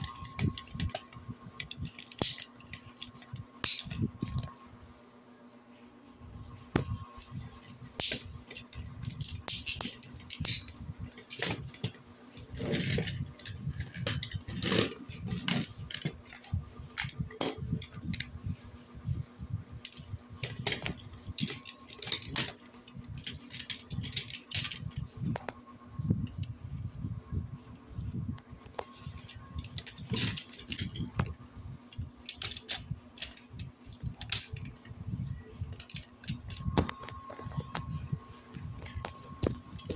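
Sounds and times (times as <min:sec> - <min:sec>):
plastic toys clattering: 0:00.0 - 0:04.6, 0:06.7 - 0:18.3, 0:19.8 - 0:25.5, 0:28.0 - 0:39.9.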